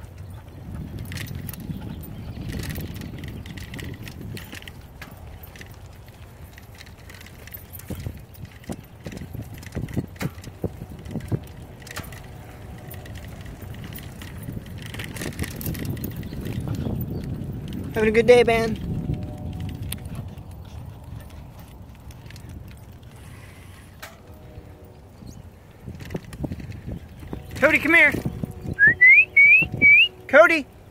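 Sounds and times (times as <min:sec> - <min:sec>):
bike knocks and rattles: 0:00.0 - 0:24.4.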